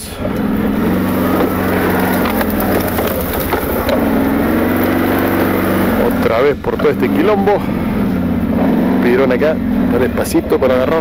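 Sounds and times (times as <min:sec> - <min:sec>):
atv engine running: 0:00.0 - 0:11.0
branches scraping and cracking: 0:00.3 - 0:06.2.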